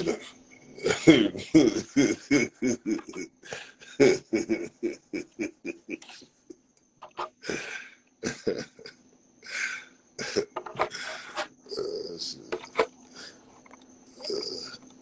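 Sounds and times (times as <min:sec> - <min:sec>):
man laughing: 0:00.0 - 0:11.5.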